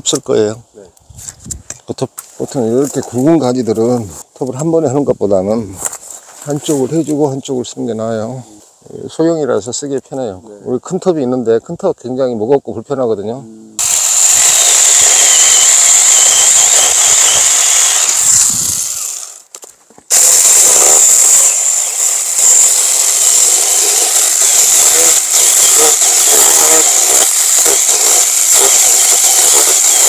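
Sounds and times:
battery chainsaw cutting branch: 0:13.8 - 0:30.0.

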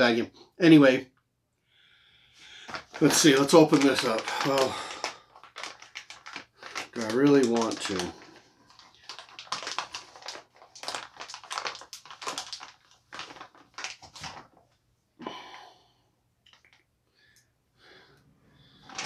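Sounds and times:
plastic bag crinkling and tearing: 0:02.6 - 0:14.7, 0:18.8 - 0:19.0.

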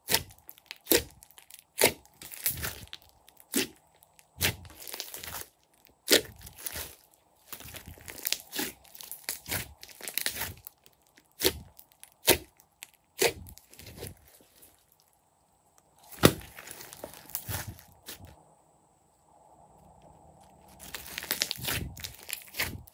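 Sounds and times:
sharp slime snap: 0:00.0 - 0:02.8, 0:11.4 - 0:12.6
slime kneaded by hand: 0:00.0 - 0:15.0, 0:16.0 - 0:18.4, 0:20.4 - 0:22.9.

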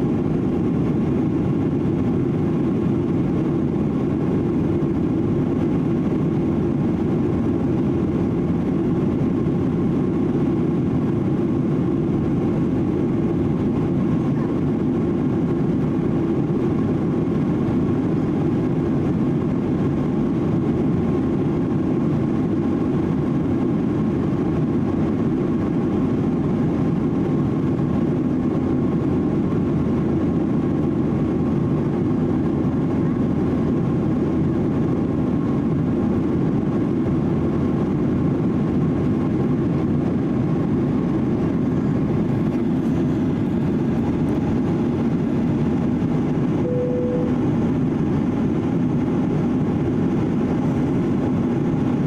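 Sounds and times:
jet engine drone: 0:00.0 - 0:52.0
faint steady tones: 0:46.5 - 0:48.2.

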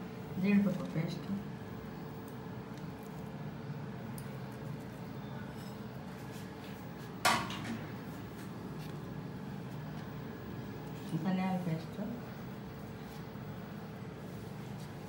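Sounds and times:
low steady hum: 0:00.0 - 0:15.0
dishes clinking: 0:05.4 - 0:06.0.

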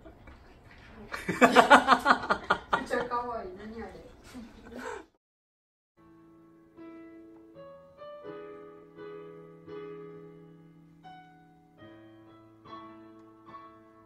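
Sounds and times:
soft piano music: 0:06.0 - 0:14.0.

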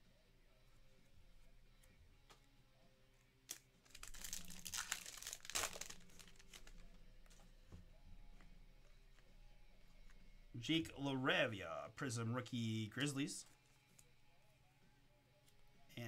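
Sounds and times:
card wrapper crinkling: 0:03.5 - 0:07.0.

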